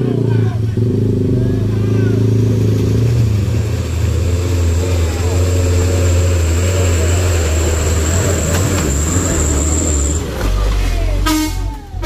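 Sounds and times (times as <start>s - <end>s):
diesel engine running under load: 0.0s - 11.2s
vehicle horn: 11.2s - 12.0s.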